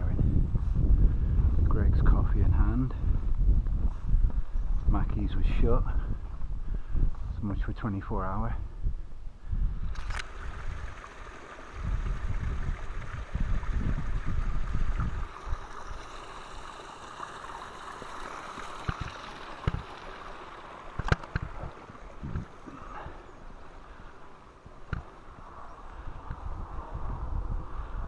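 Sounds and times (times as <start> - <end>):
wind buffeting microphone: 0.0 - 28.0
footsteps on stone path: 3.1 - 4.6
mountain stream rushing: 10.0 - 26.0.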